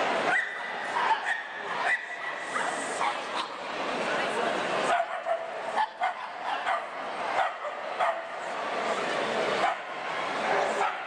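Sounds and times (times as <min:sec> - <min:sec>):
background hubbub: 0:00.0 - 0:11.0
dogs barking: 0:04.9 - 0:08.3.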